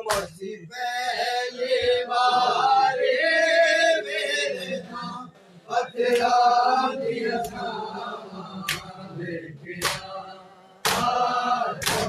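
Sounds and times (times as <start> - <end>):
men chanting together: 0.0 - 12.0
hands slapping chests: 0.1 - 0.4, 6.1 - 6.4, 7.4 - 7.6, 8.6 - 9.0, 9.8 - 10.2, 10.8 - 12.0.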